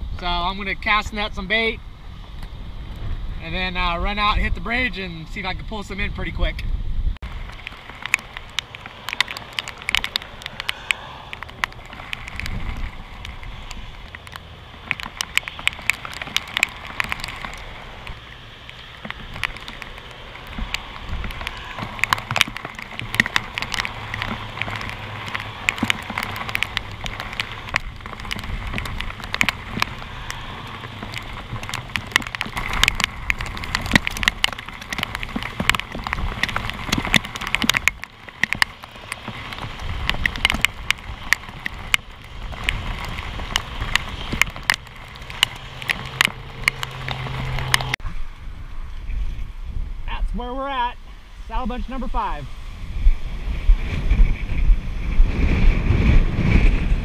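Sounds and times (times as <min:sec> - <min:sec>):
low wind rumble: 0:00.0 - 0:57.0
raindrops ticking on camera: 0:07.2 - 0:48.0.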